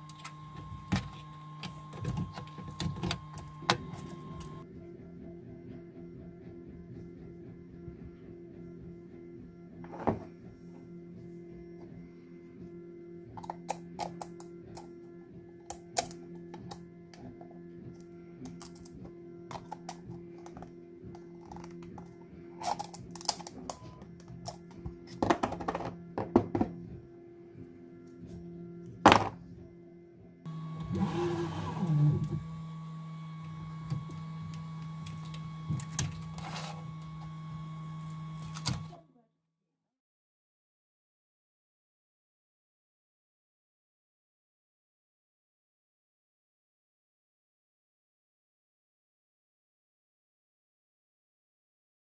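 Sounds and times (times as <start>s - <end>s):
motors whining: 0.0s - 4.6s, 30.5s - 39.0s
printer mechanical hum: 0.0s - 4.6s, 30.5s - 39.0s
soft background music: 4.0s - 30.5s.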